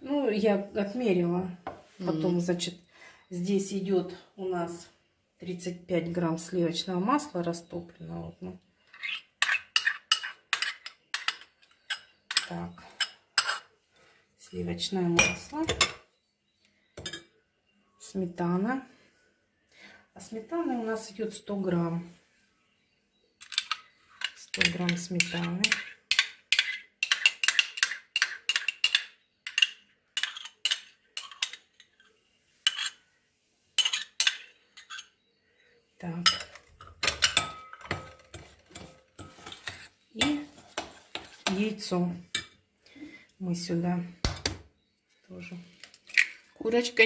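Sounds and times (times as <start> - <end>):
metal spoon clinking on porcelain bowl: 17.0 - 17.3, 24.5 - 31.6, 36.2 - 40.5.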